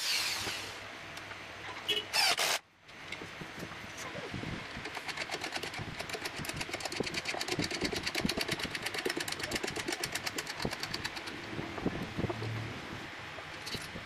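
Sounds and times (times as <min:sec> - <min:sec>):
nut rattling along threaded rod: 0:04.8 - 0:11.4.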